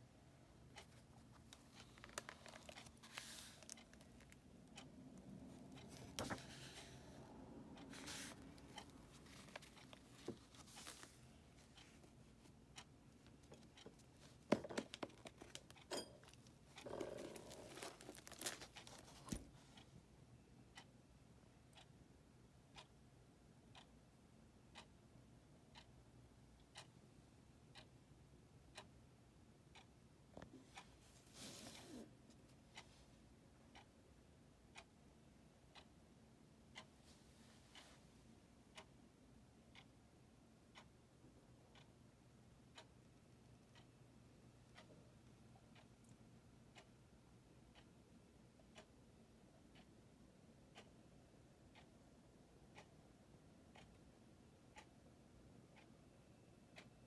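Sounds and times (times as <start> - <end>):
faint ticking: 0.2 - 19.9
book pages rustling and turning: 1.4 - 4.4, 5.8 - 7.1, 7.9 - 12.1, 16.7 - 19.8, 31.2 - 32.0.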